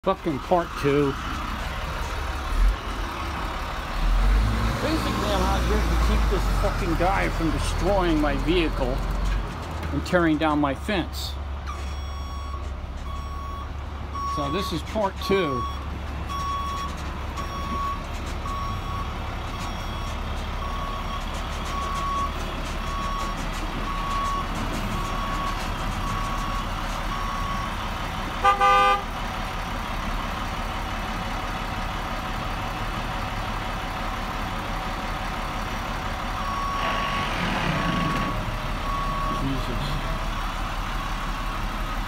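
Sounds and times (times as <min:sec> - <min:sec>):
truck engine running: 0:00.0 - 0:42.0
truck backup alarm beeping: 0:11.6 - 0:29.1, 0:36.2 - 0:42.0
truck horn toot: 0:28.4 - 0:29.1.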